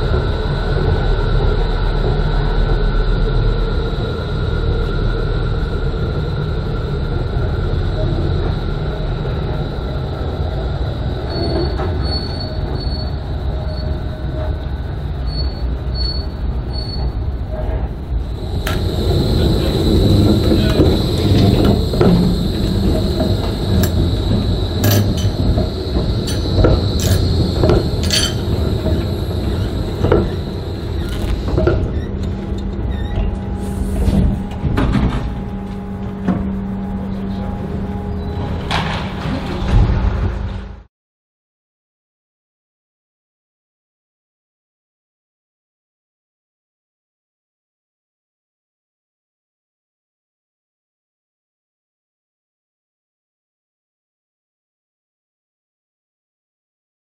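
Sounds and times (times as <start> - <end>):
high-pitched equipment hum: 0.0 - 39.7
tram rumbling on track: 0.0 - 40.9
wheels squealing on curve: 18.4 - 32.3
running gear clicks and clunks: 18.4 - 33.5.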